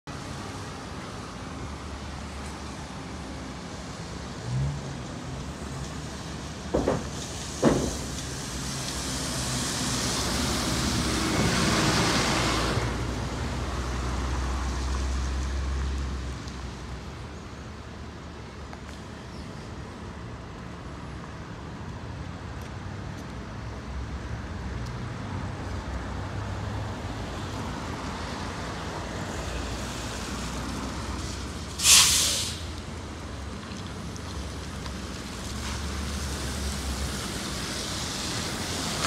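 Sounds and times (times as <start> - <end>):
sharp knocks: 6.7 - 8.2
tyre hiss on wet road: 7.1 - 17.1, 27.4 - 39.0.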